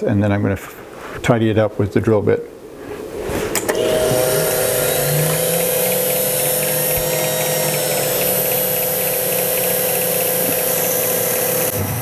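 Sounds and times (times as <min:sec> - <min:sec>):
mill spindle motor whine: 0:03.6 - 0:12.0
end mill cutting aluminium: 0:03.7 - 0:12.0.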